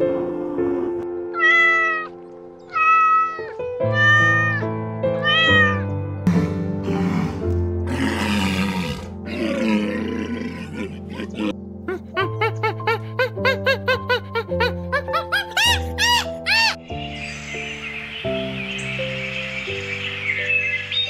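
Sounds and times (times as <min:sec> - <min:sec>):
background music: 0:00.0 - 0:21.0
cat meowing: 0:01.3 - 0:05.9.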